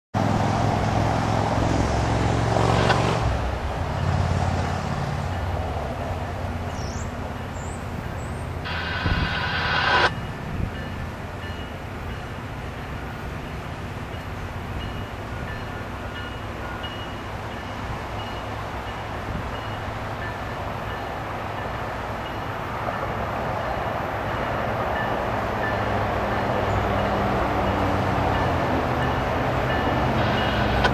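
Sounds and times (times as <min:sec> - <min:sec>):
low diesel drone: 0:08.6 - 0:10.1, 0:29.2 - 0:30.9
rushing grinding noise: 0:08.7 - 0:10.1, 0:29.9 - 0:30.9.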